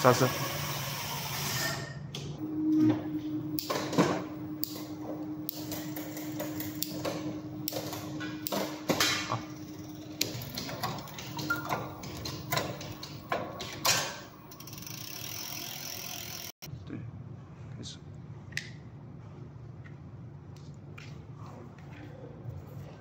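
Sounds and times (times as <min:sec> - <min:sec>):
ratchet clicks: 0:09.6 - 0:16.6
tools clicking and knocking: 0:10.2 - 0:14.9.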